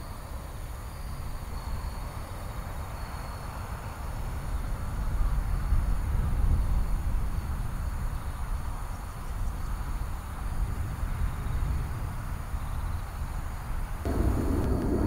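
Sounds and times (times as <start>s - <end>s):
distant jet engine rumble: 13.7s - 15.0s.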